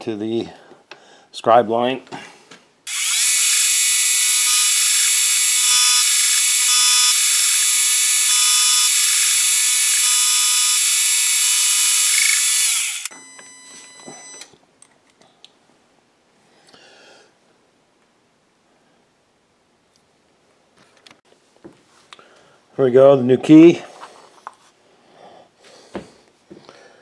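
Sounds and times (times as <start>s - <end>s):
milling machine cutting whine: 2.9s - 13.1s.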